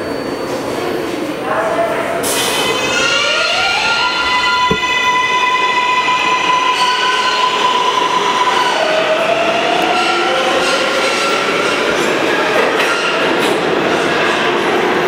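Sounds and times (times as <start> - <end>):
short knock: 4.7 - 5.0.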